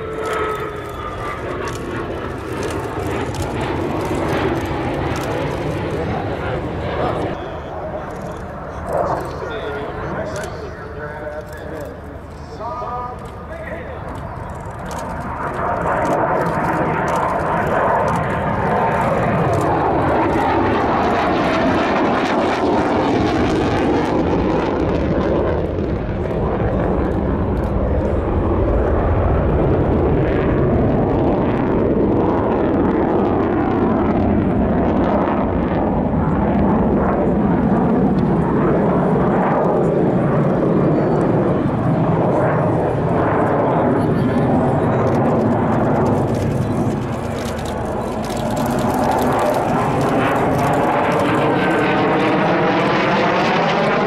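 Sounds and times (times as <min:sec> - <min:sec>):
loud continuous jet noise: 0:00.0 - 0:54.0.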